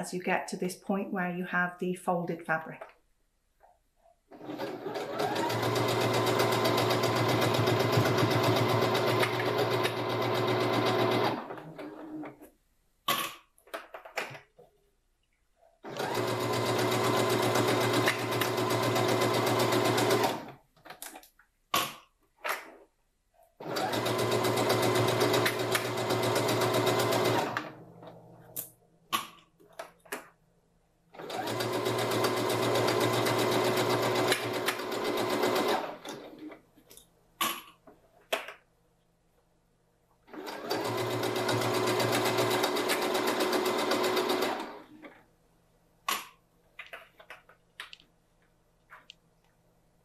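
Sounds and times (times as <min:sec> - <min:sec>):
sewing machine stitching: 0:04.3 - 0:12.5, 0:15.8 - 0:20.6, 0:23.6 - 0:27.8, 0:31.2 - 0:36.6, 0:40.3 - 0:45.2
small clicks: 0:46.1 - 0:48.1.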